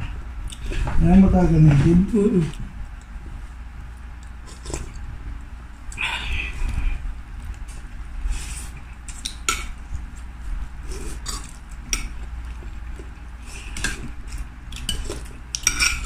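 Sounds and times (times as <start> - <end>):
low steady hum: 0.0 - 16.0
cutlery clinking on a plate: 14.8 - 16.0.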